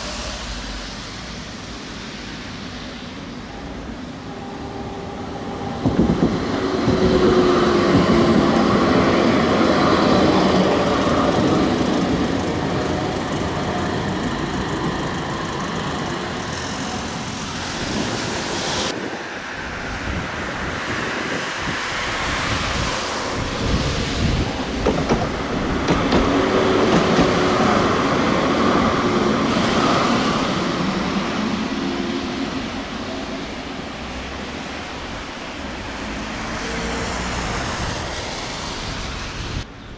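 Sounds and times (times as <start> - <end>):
tram wheels rumbling on rails: 0.0 - 39.9
tram motor whine: 3.4 - 18.1.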